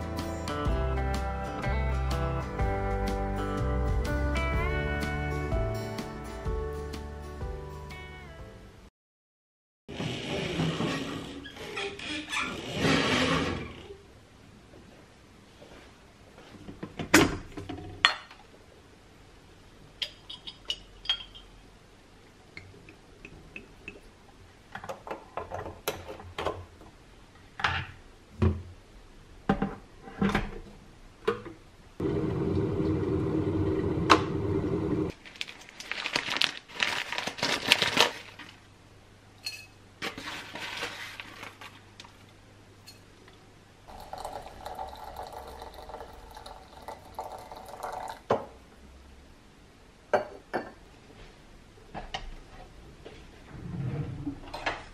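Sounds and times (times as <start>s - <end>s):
water pouring into teapot: 43.9s - 48.3s.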